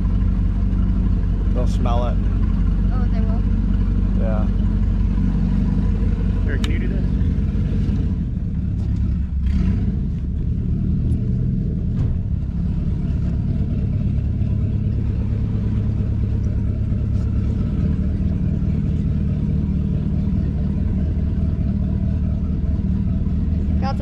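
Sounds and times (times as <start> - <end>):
motorboat engine running: 0.0 - 24.0.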